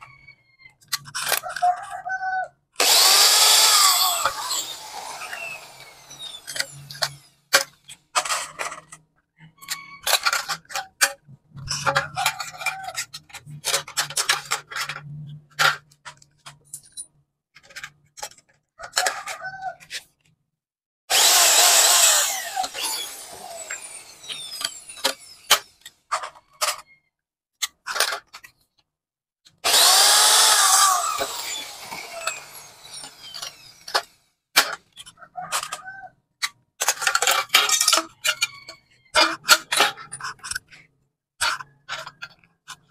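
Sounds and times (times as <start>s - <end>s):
cordless drill boring through metal: 2.8s - 7.6s, 21.1s - 25.9s, 29.5s - 34.2s.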